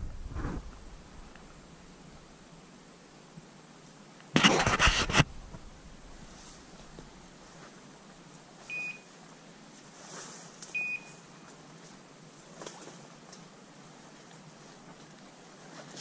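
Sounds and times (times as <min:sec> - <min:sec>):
brush rustling underfoot: 0:04.4 - 0:16.0.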